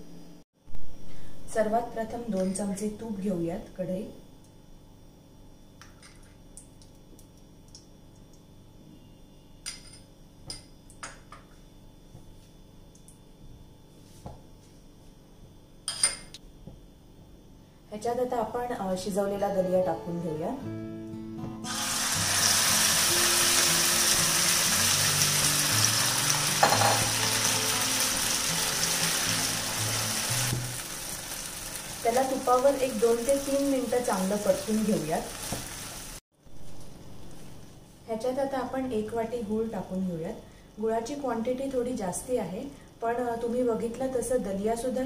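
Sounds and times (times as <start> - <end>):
food sizzling in hot fat: 21.6 - 36.8.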